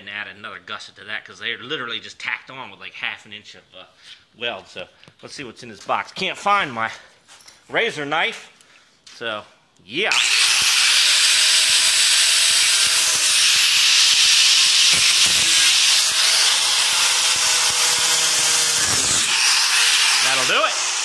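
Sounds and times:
angle grinder cutting cardboard: 10.1s - 21.0s.

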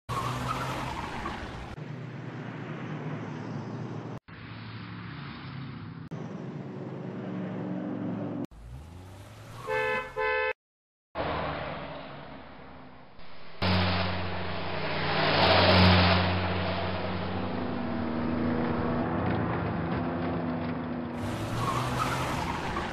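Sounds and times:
cars passing with engine hum: 0.1s - 10.5s, 11.2s - 22.9s
car horn: 9.6s - 10.6s.

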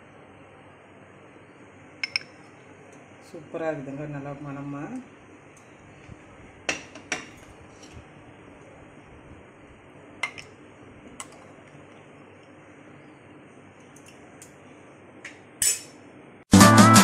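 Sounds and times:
dishes clinking against metal pot: 2.0s - 2.4s, 6.7s - 8.0s, 10.2s - 10.6s, 15.3s - 16.0s.

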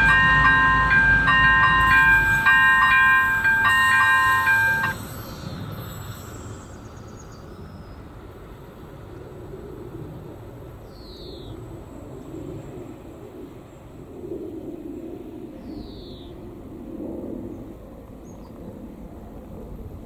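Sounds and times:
level crossing warning bell: 0.0s - 6.3s
diesel railcar rumble: 0.0s - 10.9s.

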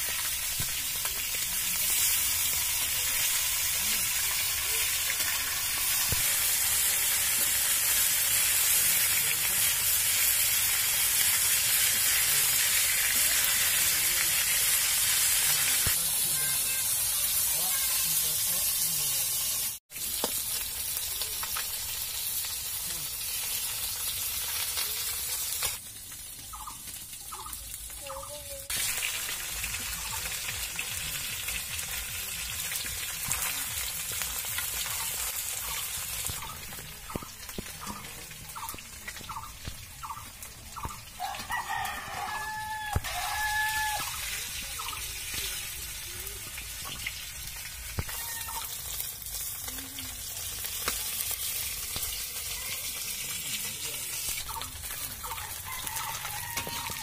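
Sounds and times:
fish sizzling in hot oil: 0.0s - 57.0s
chickens clucking: 34.7s - 46.2s, 53.8s - 57.0s.

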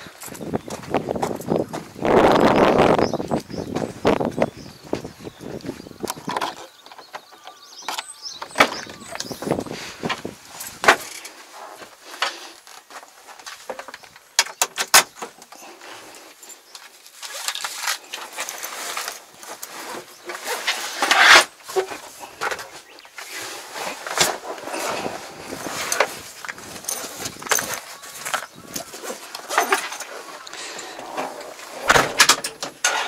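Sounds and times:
rustling: 8.0s - 33.0s.

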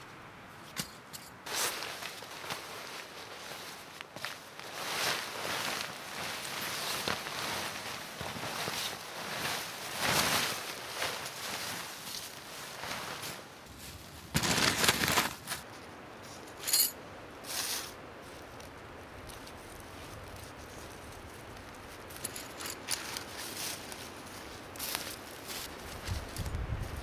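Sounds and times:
short rustles: 0.6s - 16.9s
crunching rustling burst: 4.6s - 15.7s.

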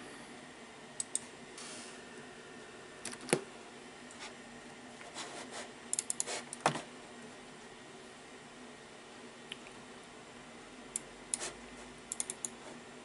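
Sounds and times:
computer hum: 0.0s - 13.0s
mouse and keyboard clicks: 6.0s - 6.3s, 12.1s - 12.6s.

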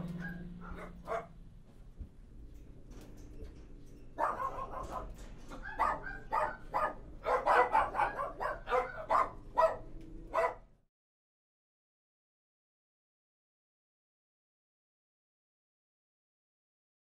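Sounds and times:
low steady hum: 0.0s - 7.6s
dog barking rapidly: 0.2s - 1.4s, 4.2s - 10.7s.

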